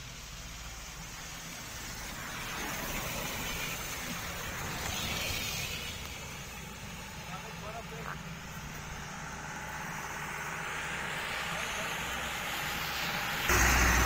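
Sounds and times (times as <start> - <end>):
car driving past on wet road: 10.0 - 14.0.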